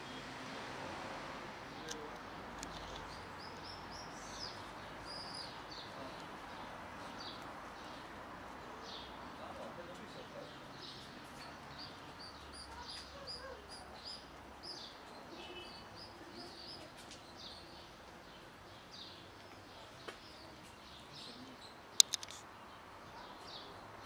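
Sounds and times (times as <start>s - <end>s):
outdoor background noise: 0.0s - 24.0s
small birds chirping: 1.6s - 24.0s
sharp clicks: 1.9s - 3.2s, 22.0s - 22.4s.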